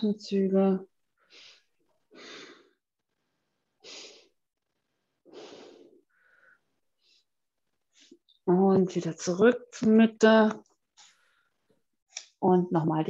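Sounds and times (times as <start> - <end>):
person breathing deeply: 5.2 - 7.3.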